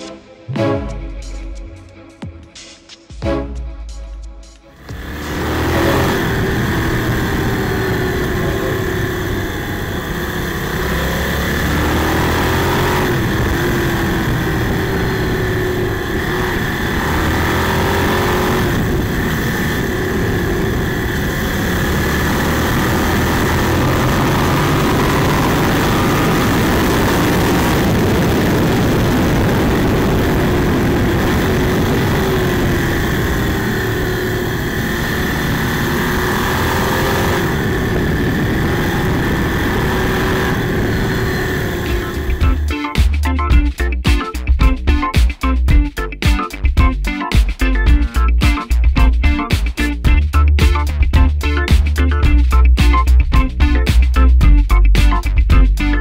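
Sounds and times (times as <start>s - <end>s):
motorcycle engine accelerating: 4.7s - 56.0s
wind rushing over microphone: 4.9s - 42.7s.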